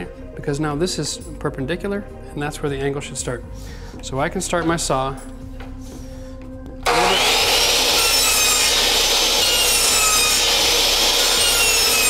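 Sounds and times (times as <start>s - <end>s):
miter saw switching on: 6.8s - 12.0s
saw motor whining: 6.8s - 12.0s.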